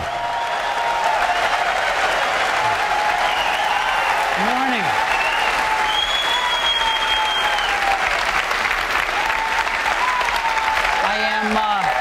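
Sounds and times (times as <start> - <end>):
audience applauding: 0.0 - 12.0
crowd cheering: 0.0 - 12.0
long high whistle: 3.2 - 4.2, 5.1 - 7.8.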